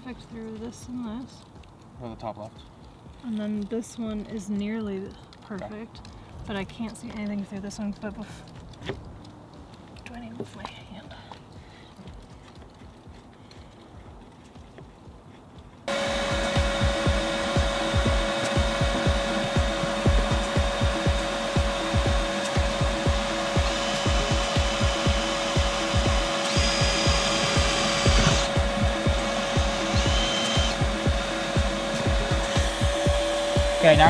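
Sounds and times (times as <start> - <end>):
cordless drill whining: 15.9 - 34.0
steady hum with low pulse: 15.9 - 34.0.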